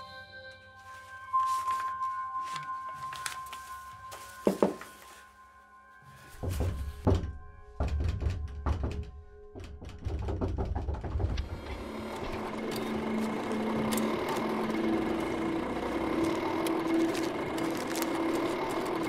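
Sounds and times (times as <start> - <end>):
sharp clicks and knocks: 6.5 - 14.5
machine-like whirring: 11.4 - 19.0.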